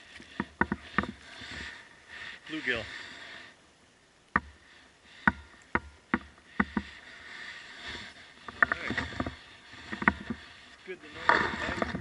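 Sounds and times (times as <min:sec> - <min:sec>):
clicks and knocks on kayak: 0:05.2 - 0:07.0, 0:08.4 - 0:10.5.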